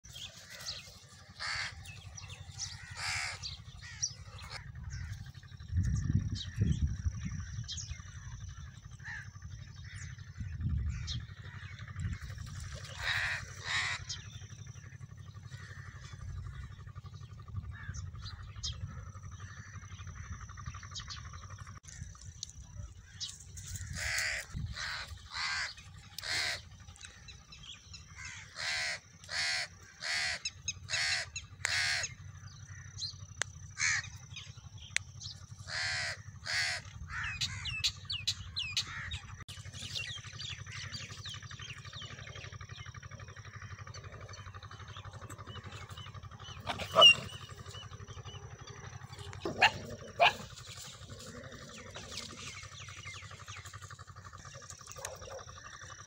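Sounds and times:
low rumble: 0.0s - 56.0s
crows cawing: 0.4s - 5.6s, 8.9s - 16.9s, 17.6s - 20.7s, 23.0s - 33.1s, 33.7s - 34.3s, 35.6s - 37.9s, 38.6s - 39.4s.

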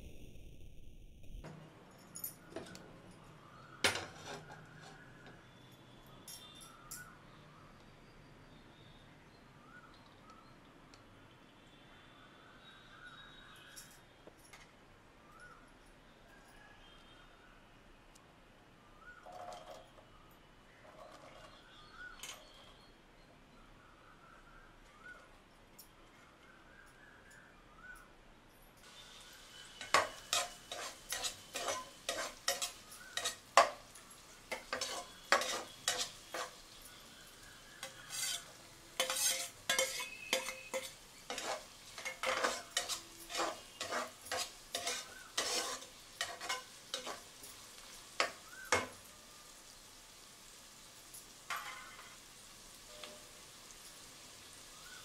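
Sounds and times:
utensil scraping a pan: 4.0s - 5.0s, 29.2s - 49.0s
onions sizzling in hot oil: 28.8s - 55.0s.

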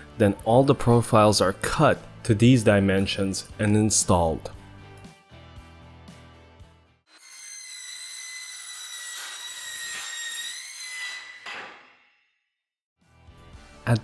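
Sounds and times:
circular saw cutting metal: 7.1s - 12.1s.

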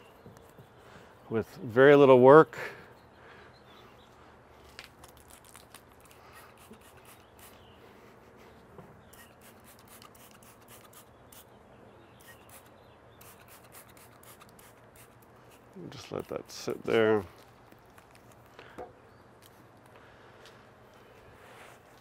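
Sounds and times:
spray bottle spritzes: 9.2s - 11.1s.

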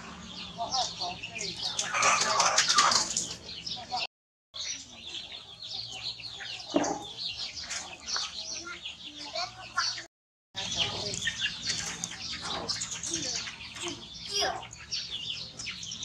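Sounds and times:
chickens clucking and chirping: 0.0s - 16.0s.

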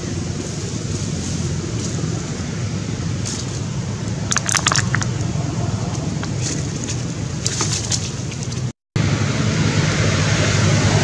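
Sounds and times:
wind rumbling on microphone: 0.0s - 11.0s
plastic packet crinkling: 4.3s - 5.1s.

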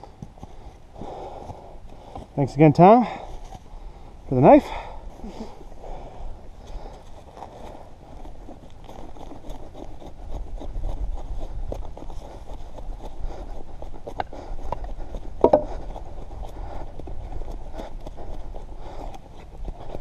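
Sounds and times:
knife scraping wood: 6.6s - 16.7s.

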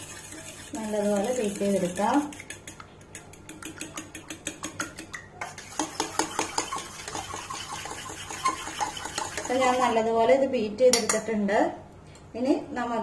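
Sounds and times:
whisk clicking against metal bowl: 0.0s - 10.0s.

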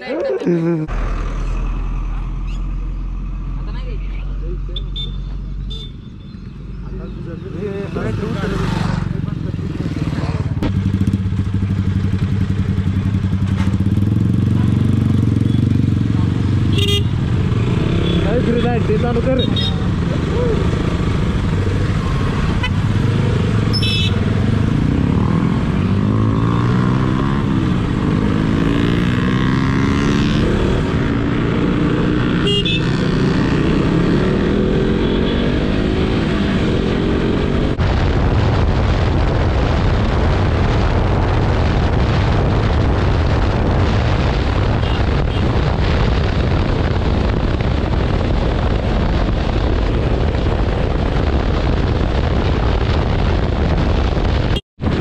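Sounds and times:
motorcycle engine revving: 7.0s - 37.8s
steady rushing noise: 35.6s - 55.0s.

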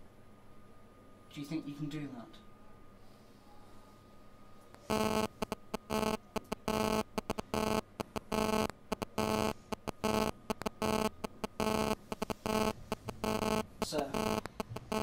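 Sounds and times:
electronic buzzer pulsing: 4.8s - 15.0s.

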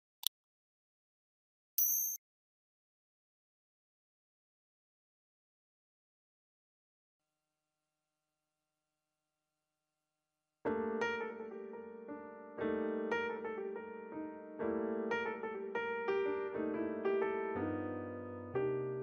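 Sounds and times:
solo piano music: 10.7s - 19.0s.

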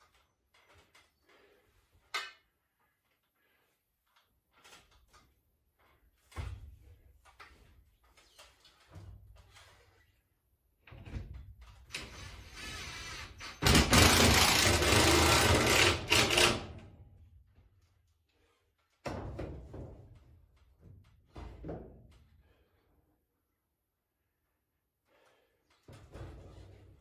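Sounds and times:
cordless drill driving a screw: 11.9s - 16.6s.

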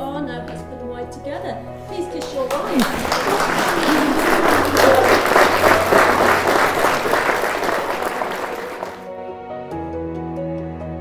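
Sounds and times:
music: 0.0s - 11.0s
crowd applauding: 2.2s - 9.1s.

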